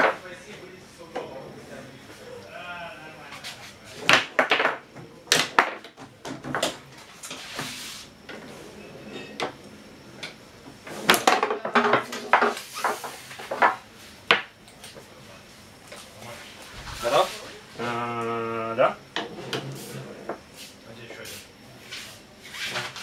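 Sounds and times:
foosball ball clacking: 0:04.0 - 0:06.8, 0:11.0 - 0:14.5.

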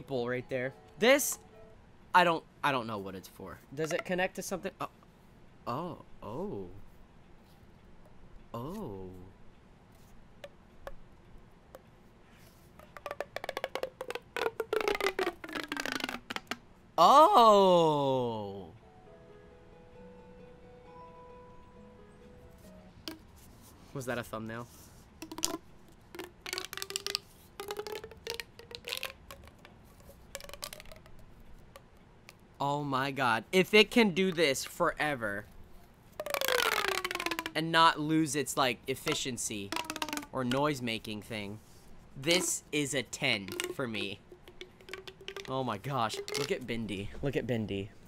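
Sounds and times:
plastic pop tube clicking: 0:10.4 - 0:11.0, 0:12.8 - 0:16.6, 0:23.1 - 0:23.3, 0:25.2 - 0:32.4, 0:36.2 - 0:37.6, 0:39.0 - 0:40.6, 0:43.4 - 0:46.7.

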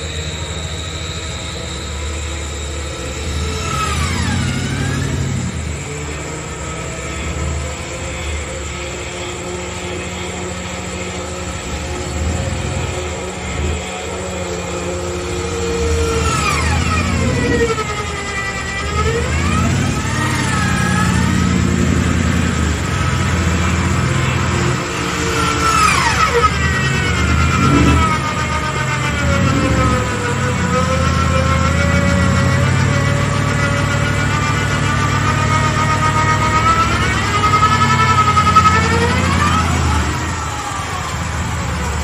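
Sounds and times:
electric winch motor hum: 0:00.0 - 0:42.0
winch whine dropping in pitch: 0:00.0 - 0:42.0.

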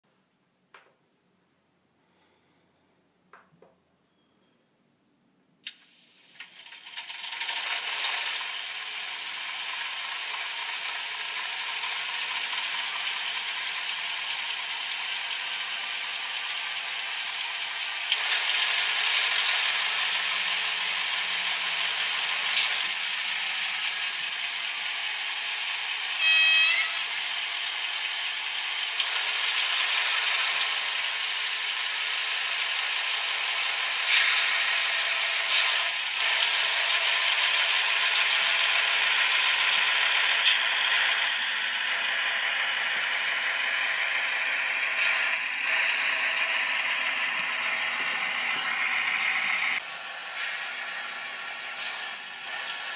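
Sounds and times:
tinny model diesel engine running: 0:05.7 - 0:52.9
short horn toot: 0:26.2 - 0:27.0.

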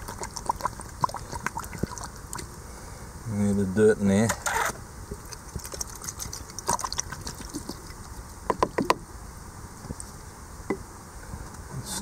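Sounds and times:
water sloshing in a plastic pan: 0:00.0 - 0:02.5, 0:05.1 - 0:08.9.

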